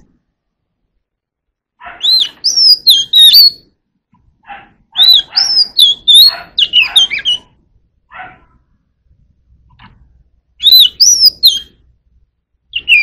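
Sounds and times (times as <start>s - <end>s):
bird singing whistled notes: 2.0s - 3.7s, 4.9s - 7.5s, 10.6s - 11.8s, 12.7s - 13.0s.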